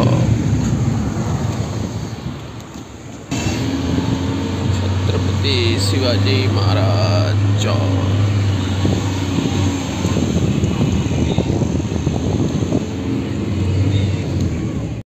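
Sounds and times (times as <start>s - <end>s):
car engine drone: 0.0s - 15.0s
road noise rushing: 0.0s - 15.0s.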